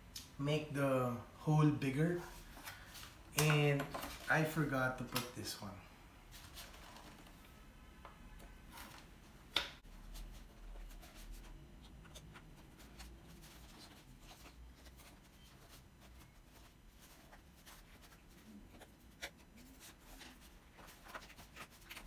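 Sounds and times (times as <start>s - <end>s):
scratchy rustling of foam: 12.2s - 22.0s.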